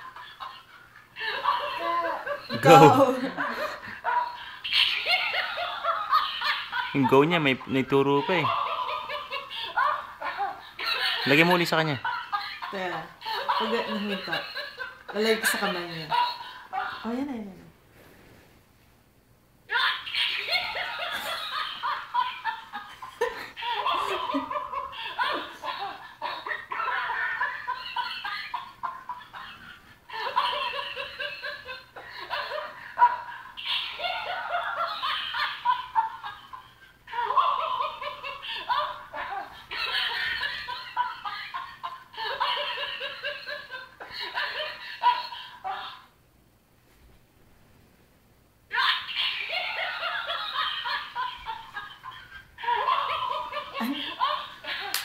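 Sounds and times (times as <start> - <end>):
toy laughter through speaker: 4.1 - 6.9, 19.7 - 22.9, 23.6 - 46.0, 48.7 - 55.0.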